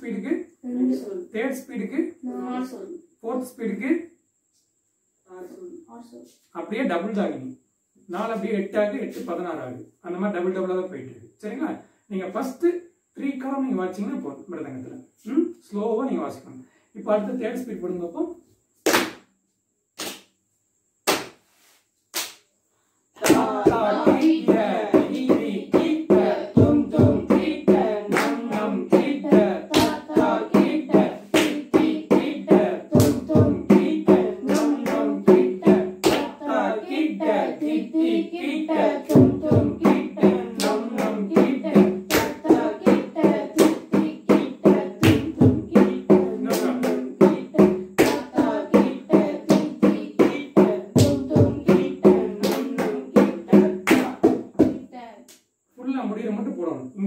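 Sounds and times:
hands clapping: 0:18.9 - 0:19.3, 0:20.0 - 0:20.3, 0:21.0 - 0:21.4, 0:22.1 - 0:22.4, 0:23.2 - 0:24.4, 0:28.1 - 0:28.4, 0:31.4 - 0:31.6, 0:36.0 - 0:36.3, 0:48.0 - 0:48.2, 0:52.4 - 0:52.7
voices reciting drum syllables: 0:23.2 - 0:55.2.

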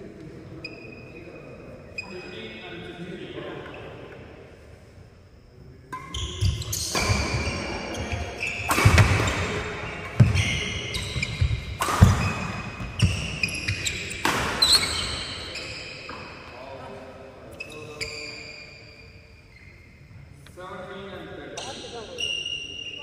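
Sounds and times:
shoes squeaking on wooden floor: 0:06.1 - 0:16.2
racket striking shuttlecock: 0:08.5 - 0:10.4, 0:11.2 - 0:13.3.

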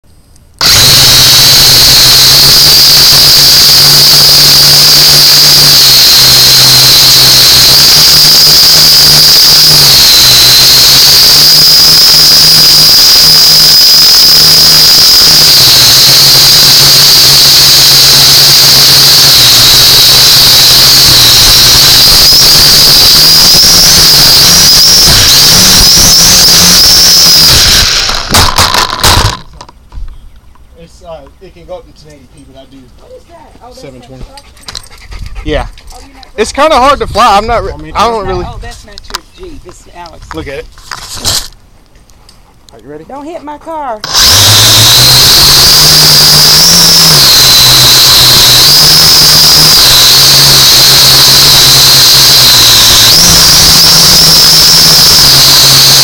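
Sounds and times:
drone propellers whining: 0:00.6 - 0:29.4, 0:44.0 - 0:56.0.

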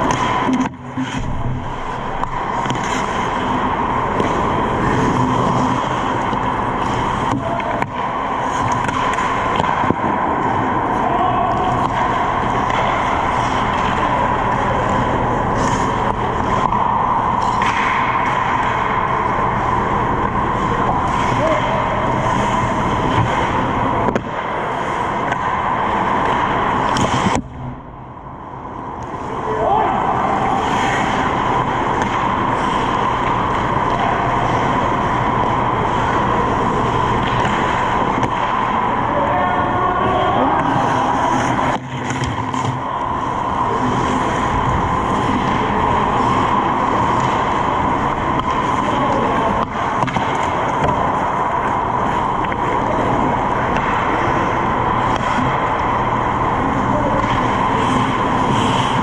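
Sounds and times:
hockey sticks clacking: 0:00.0 - 0:27.6, 0:30.3 - 0:39.0, 0:40.4 - 0:56.0, 0:56.6 - 0:59.0
steady rink hum: 0:00.0 - 0:59.0
steady rushing noise: 0:00.0 - 0:59.0
skate blades scraping ice: 0:02.5 - 0:09.9, 0:56.8 - 0:59.0.

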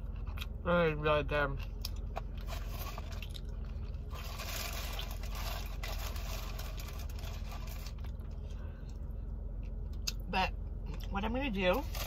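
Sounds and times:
car engine idling: 0:00.0 - 0:12.0
soft chewing: 0:01.6 - 0:10.2.

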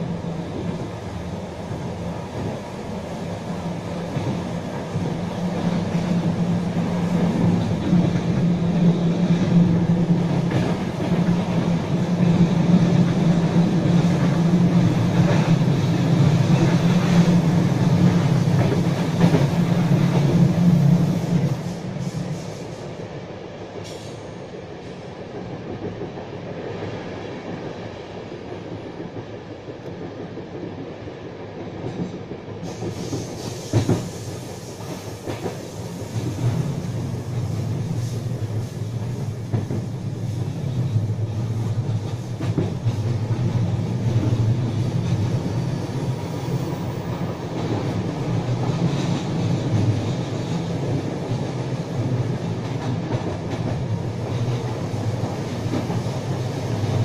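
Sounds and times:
train running noise inside coach: 0:00.0 - 0:57.0.

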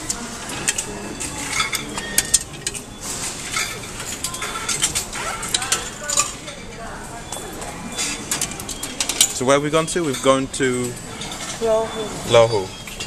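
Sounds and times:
machine clicks and metallic clinks: 0:00.1 - 0:06.4.

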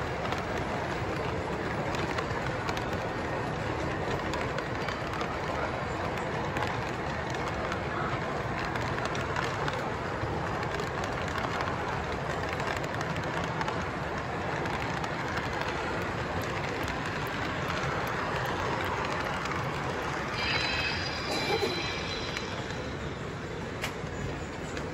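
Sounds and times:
high ringing tones: 0:20.2 - 0:23.7.

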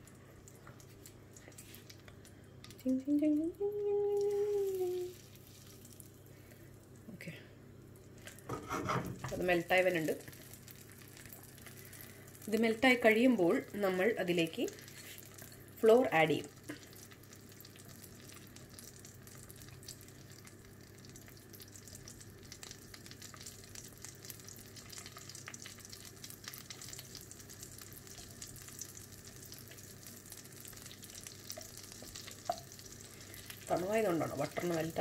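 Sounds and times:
butter and oil sizzling: 0:00.0 - 0:07.0, 0:07.8 - 0:35.0
low steady hum: 0:00.0 - 0:35.0
wooden spatula in pan: 0:08.5 - 0:09.4.

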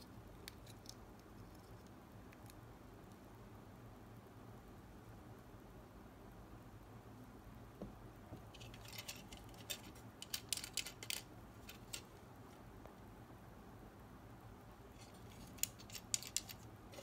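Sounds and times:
plastic parts clicking and rattling: 0:08.5 - 0:12.1, 0:15.0 - 0:17.0.

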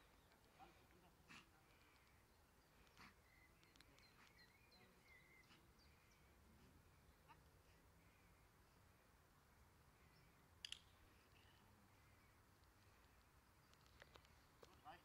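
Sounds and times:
faint bird chirps: 0:00.0 - 0:09.0, 0:09.9 - 0:15.0
faint clicks: 0:01.6 - 0:04.4, 0:12.5 - 0:14.8.

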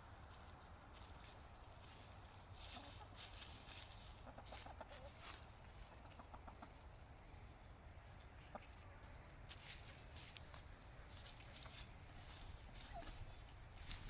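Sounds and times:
scratching in dry leaves: 0:00.0 - 0:14.0
chickens clucking softly: 0:02.3 - 0:09.1.

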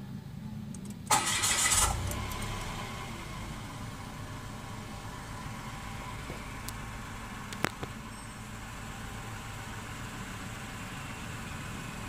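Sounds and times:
car engine idling: 0:00.0 - 0:12.0
faint low whistling: 0:08.0 - 0:09.1.

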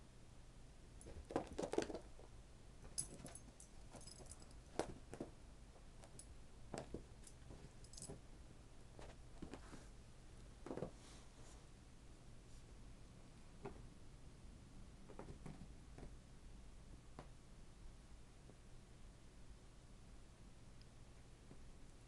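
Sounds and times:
animals scuffling on a rug: 0:08.9 - 0:10.0.

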